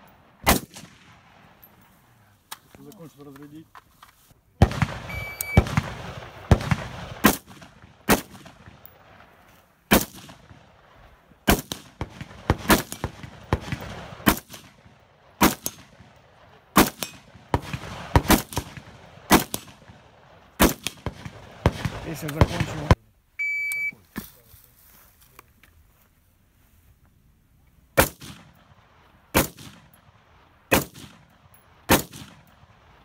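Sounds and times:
rifle shots: 0:00.3 - 0:01.7, 0:04.6 - 0:09.3, 0:09.9 - 0:23.0, 0:28.0 - 0:33.0
short electronic beep: 0:05.1 - 0:05.6, 0:23.4 - 0:24.0.

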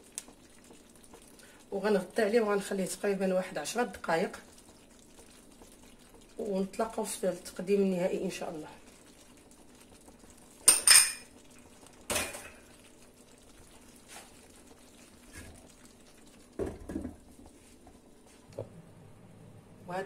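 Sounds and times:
kitchenware clinking: 0:10.6 - 0:11.3, 0:12.1 - 0:12.6.

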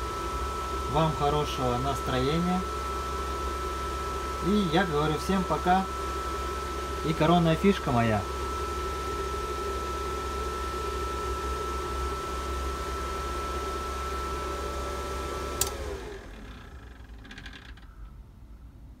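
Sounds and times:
cooling fan whining: 0:00.0 - 0:19.0
power switch click: 0:15.5 - 0:15.9.

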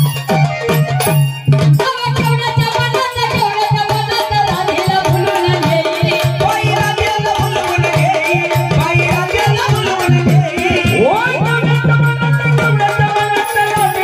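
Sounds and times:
drum strokes: 0:00.0 - 0:14.0
folk percussion: 0:00.0 - 0:14.0.

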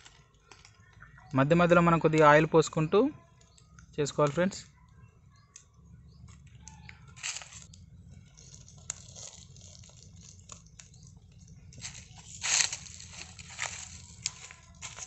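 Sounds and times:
wood fire crackling: 0:05.5 - 0:15.0.

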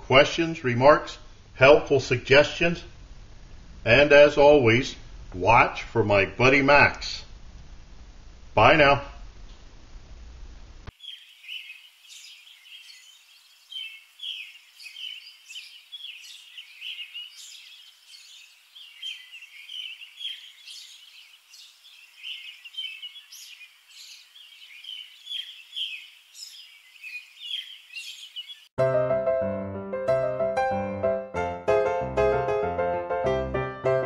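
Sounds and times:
songbirds chirping: 0:10.8 - 0:28.8.

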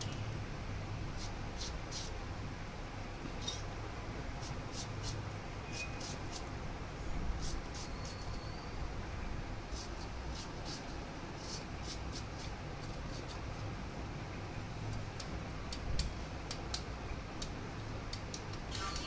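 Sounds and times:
low background hum: 0:00.0 - 0:19.0
knife slicing beetroot: 0:01.2 - 0:02.2, 0:04.4 - 0:06.5.

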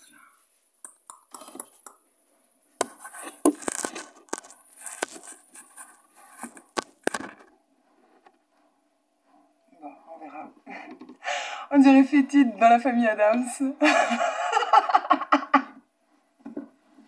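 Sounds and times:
fingers rubbing on phone: 0:02.8 - 0:06.8.

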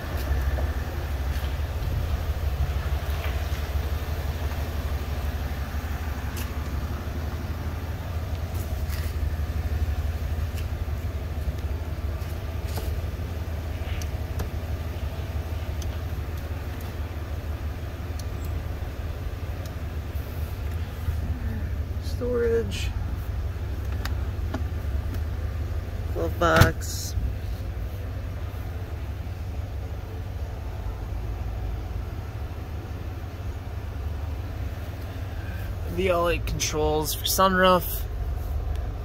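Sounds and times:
vehicle engine idling: 0:00.0 - 0:39.0.

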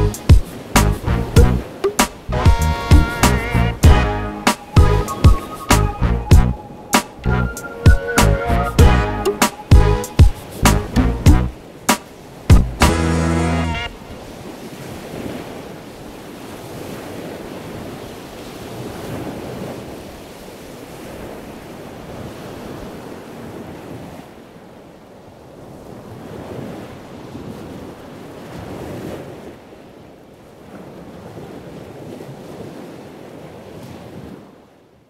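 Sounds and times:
sea surf washing in: 0:00.0 - 0:24.3.

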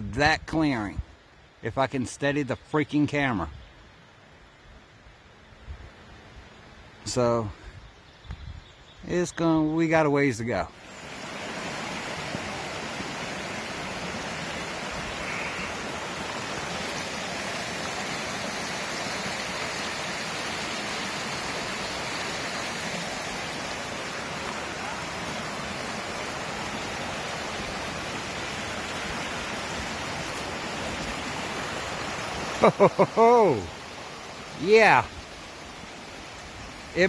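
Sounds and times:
stream rushing over rocks: 0:10.7 - 0:37.0.

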